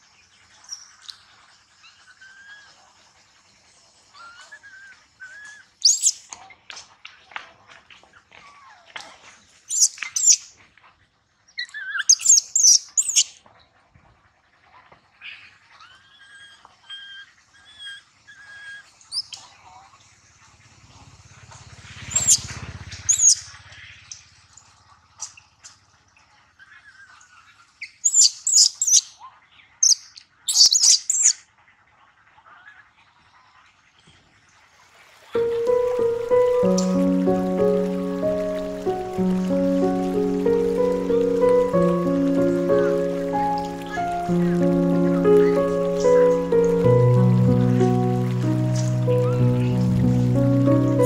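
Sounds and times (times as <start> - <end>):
birds chirping loudly: 35.4 - 51.0.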